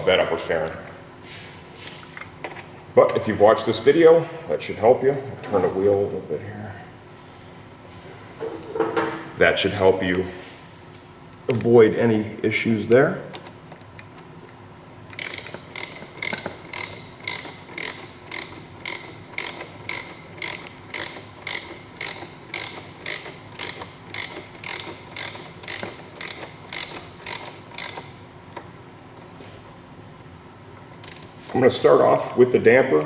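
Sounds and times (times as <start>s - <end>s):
ratchet wrench clicking: 15.2s - 28.2s, 31.0s - 31.3s.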